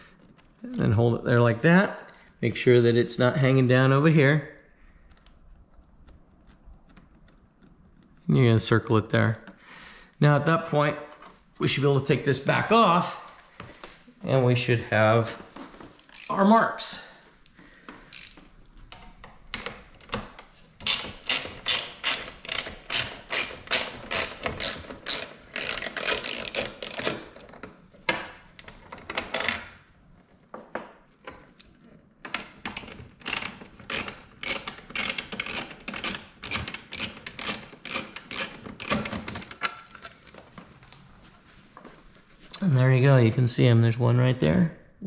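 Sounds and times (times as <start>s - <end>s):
ratchet driver clicking: 16.0s - 16.4s, 18.1s - 19.0s, 20.9s - 27.4s, 32.7s - 39.6s.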